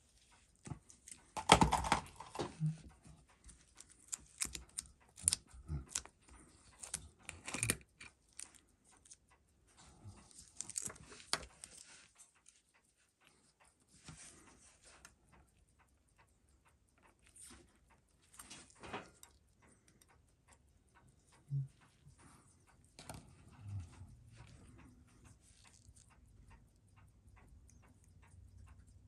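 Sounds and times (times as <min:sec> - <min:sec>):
tools and parts clicking: 0:06.8 - 0:08.6.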